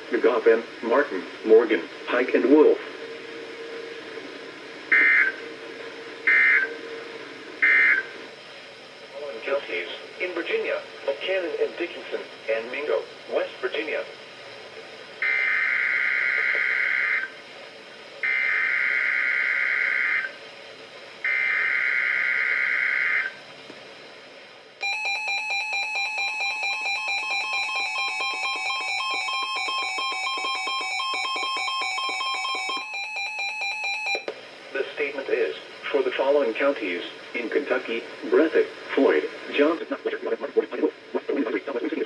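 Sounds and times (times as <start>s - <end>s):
steady warning alarm tone: 4.8s - 8.2s, 15.2s - 17.4s, 18.2s - 20.4s, 21.2s - 23.4s, 24.8s - 34.3s
buzzy digital header bursts: 6.2s - 6.8s, 7.6s - 8.1s
rapid pulsing alert beeps: 24.8s - 34.2s.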